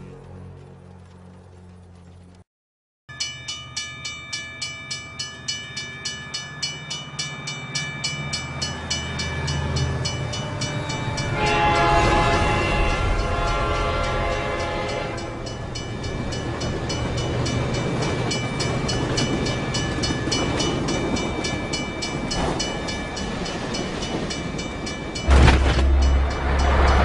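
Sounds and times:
train wagons clattering: 8.6s - 27.0s
train horn: 11.2s - 15.6s
loud low rumble: 25.3s - 27.0s.

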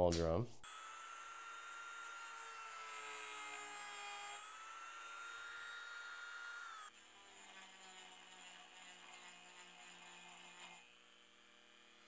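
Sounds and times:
rotary tool whining against wood: 0.6s - 12.0s.

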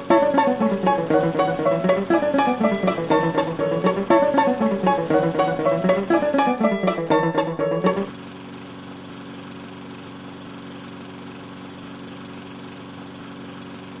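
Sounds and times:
plucked-string music: 0.0s - 8.1s
lawn mower engine running: 0.0s - 14.0s.

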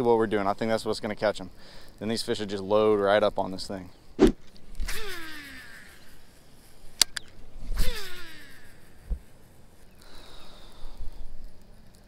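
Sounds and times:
fishing reel spool whirring: 4.8s - 6.0s, 7.7s - 8.9s.

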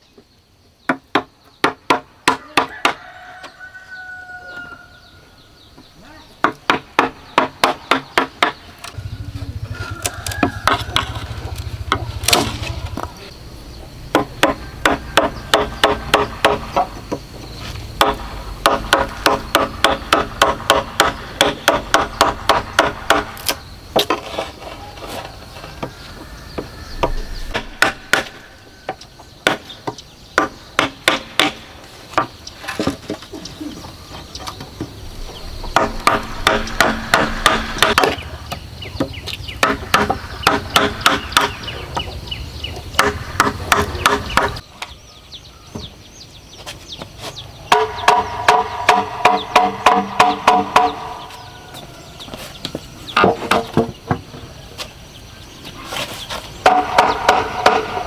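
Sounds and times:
chisel striking hollow bamboo: 0.9s - 3.0s, 6.4s - 9.0s, 10.0s - 13.1s, 14.1s - 17.2s, 18.0s - 24.6s, 25.6s - 33.2s, 34.8s - 42.1s, 43.0s - 45.0s, 47.7s - 51.4s, 56.6s - 58.0s.

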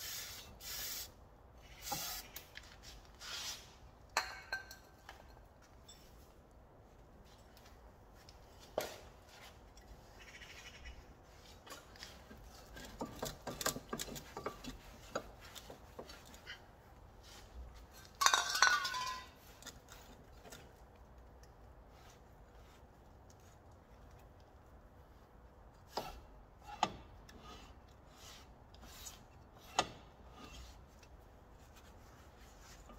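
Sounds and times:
ringing clatter of metal parts: 18.0s - 19.8s.

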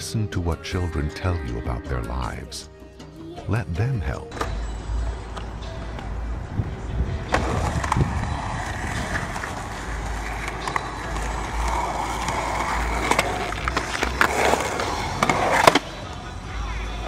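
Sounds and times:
skateboard wheels rolling on concrete: 4.3s - 17.0s
skateboard clacks: 7.1s - 16.4s.

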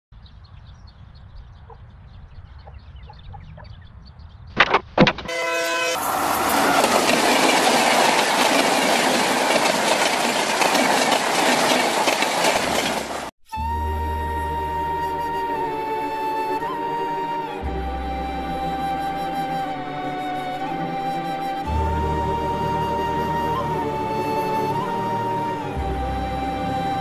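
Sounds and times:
train whistle blast: 5.3s - 7.0s, 13.5s - 27.0s
rush of train noise: 5.3s - 13.3s
steam train chuffing: 5.7s - 13.3s.

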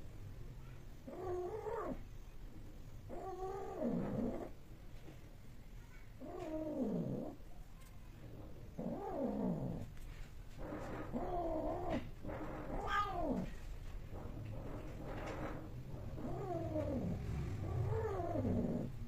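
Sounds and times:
cats yowling: 10.8s - 13.6s.

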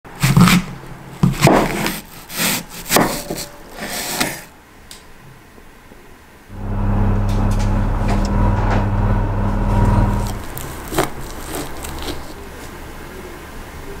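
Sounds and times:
low hum: 6.5s - 10.7s
scraping and rubbing: 6.5s - 12.7s.

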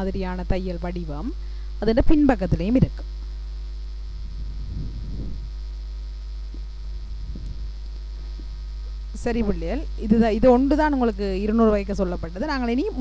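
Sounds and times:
mains hum: 0.0s - 13.0s.

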